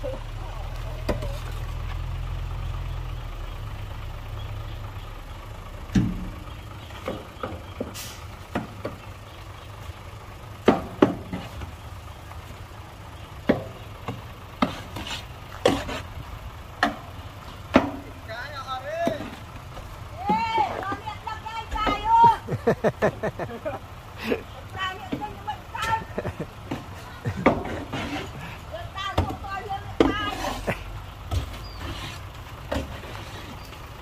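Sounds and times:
diesel machinery rumbling: 0.0 - 34.0
sharp knocks and clanks: 5.9 - 9.0, 10.6 - 11.7, 16.8 - 17.1, 17.7 - 18.1, 26.6 - 28.3.

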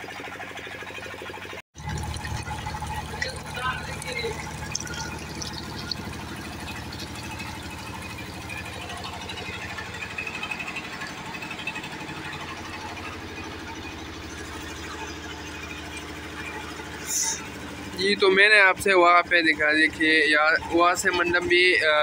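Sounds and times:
engine running with pulsing drone: 0.0 - 22.0
liquid pouring into metal tank: 1.8 - 11.2.

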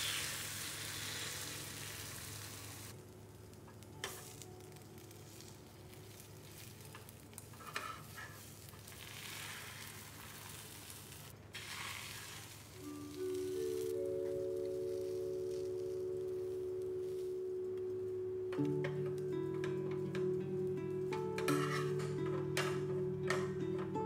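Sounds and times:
egg sizzling in pan: 0.0 - 3.0, 3.8 - 17.6.

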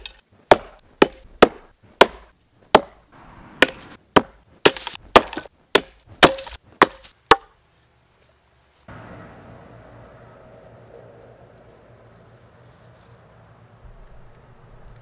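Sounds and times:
axe chopping into tree trunk: 0.0 - 3.0, 3.6 - 7.5.

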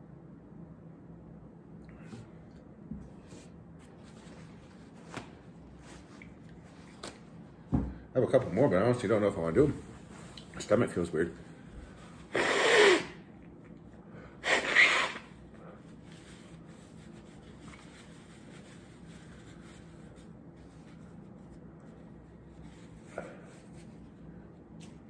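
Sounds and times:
nose blowing into tissue: 12.2 - 13.3, 14.4 - 15.4.

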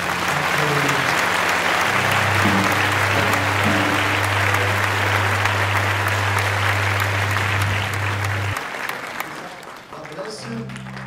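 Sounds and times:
congregation applauding: 0.0 - 11.0
low held instrument note: 1.9 - 8.6.

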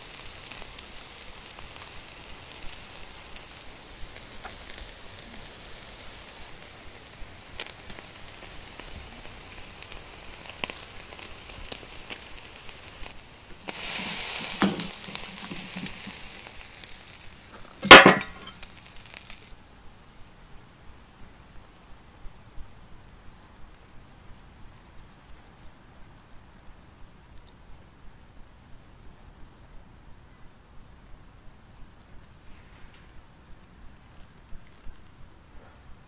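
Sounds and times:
steak sizzling on a grill: 0.0 - 19.6
sharp loud crack: 13.5 - 16.6, 17.5 - 18.8.

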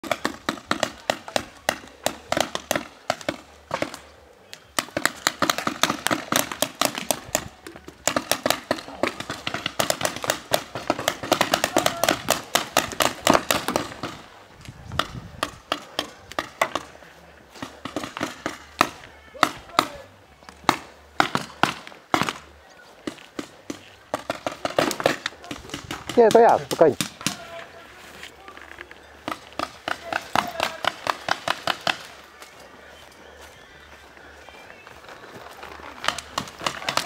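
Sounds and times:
paintball markers firing: 0.0 - 14.3, 17.6 - 27.6, 29.2 - 32.2, 35.8 - 37.0.

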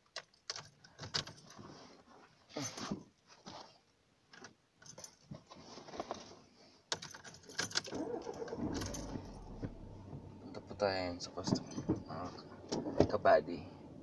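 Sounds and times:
car keys jangling: 6.9 - 10.1, 11.5 - 12.1
engine starting and running: 7.8 - 14.0.

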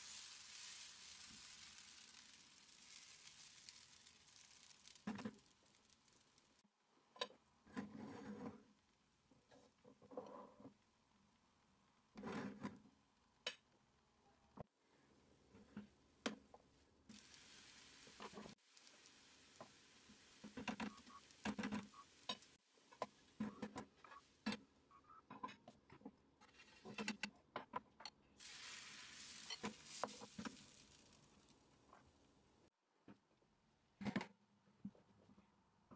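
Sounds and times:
batter sizzling in hot pan: 0.0 - 6.6, 17.1 - 23.4, 28.4 - 32.1.

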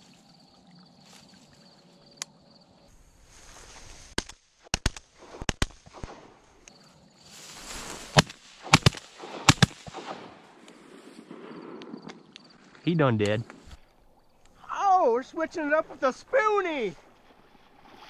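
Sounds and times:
shotguns firing rapidly: 8.2 - 10.4.

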